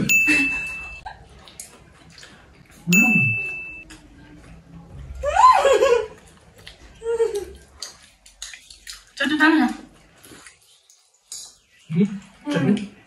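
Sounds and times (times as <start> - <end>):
bell-like ding: 0.0 - 1.0, 2.9 - 3.8.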